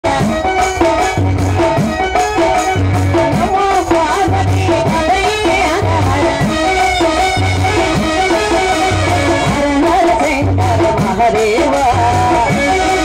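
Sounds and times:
folk music over loudspeakers: 0.0s - 13.0s
low rising drum note: 5.8s - 9.7s.

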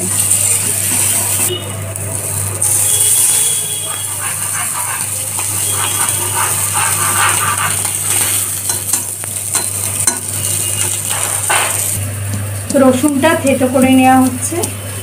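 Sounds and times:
fish sizzling in oil: 0.0s - 15.0s
metal spatula scraping pan: 3.2s - 11.9s.

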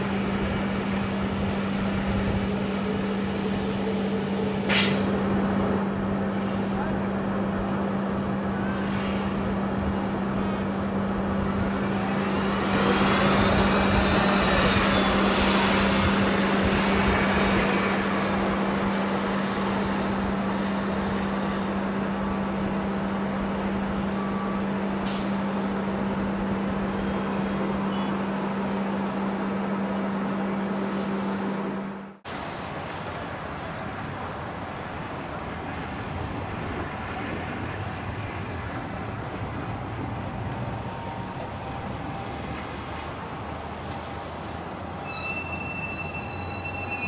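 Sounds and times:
jet engines humming with whine: 0.0s - 47.0s.

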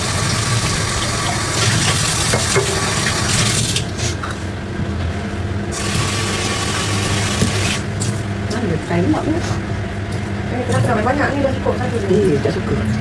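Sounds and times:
tap running water into sink: 0.0s - 3.8s, 5.8s - 7.8s.

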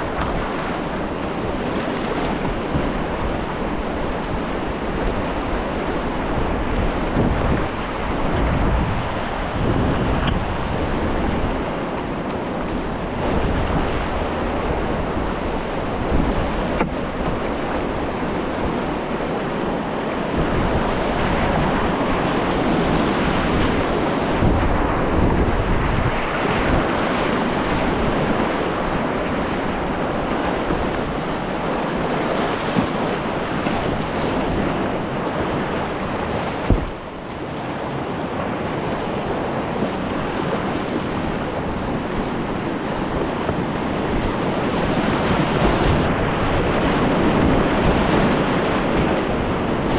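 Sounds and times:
river rapid rushing: 0.0s - 49.9s
wind rumbling on microphone: 0.0s - 49.9s.

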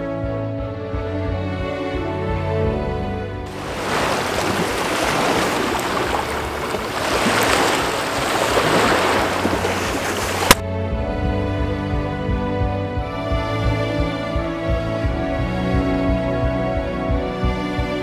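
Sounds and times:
waves lapping on stone shore: 3.5s - 10.6s.

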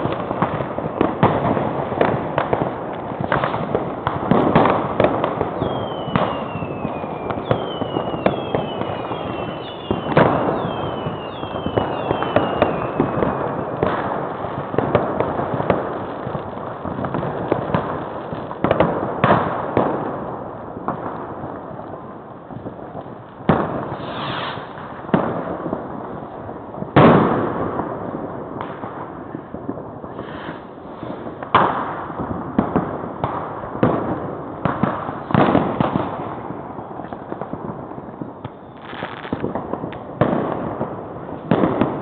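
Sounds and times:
fireworks bangs: 0.0s - 42.0s
fireworks crackling: 0.0s - 42.0s
falling whistles: 5.6s - 13.0s.

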